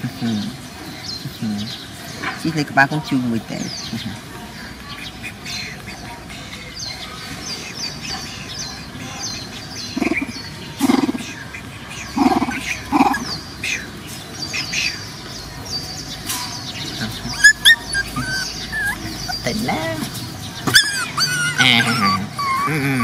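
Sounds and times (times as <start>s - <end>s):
young animal cries: 17.1s - 23.0s.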